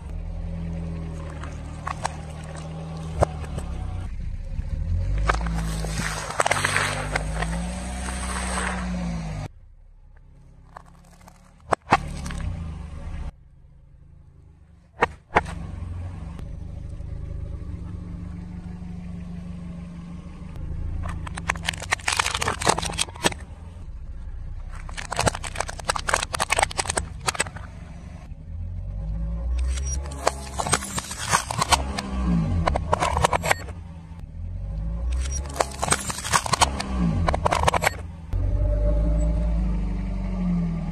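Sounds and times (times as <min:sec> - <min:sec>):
car tyre crushing objects: 0:00.0 - 0:13.3, 0:14.8 - 0:16.2, 0:20.6 - 0:28.3, 0:29.5 - 0:38.4
low car rumble: 0:00.0 - 0:40.9
foam bowls crunching: 0:05.1 - 0:08.9, 0:21.0 - 0:23.4, 0:24.6 - 0:27.6
plastic clock crackling apart: 0:21.0 - 0:23.4, 0:24.7 - 0:27.6, 0:29.6 - 0:32.1, 0:35.2 - 0:38.0
sharp cracks: 0:21.0 - 0:23.8, 0:24.6 - 0:27.9, 0:29.6 - 0:33.8, 0:35.1 - 0:38.1.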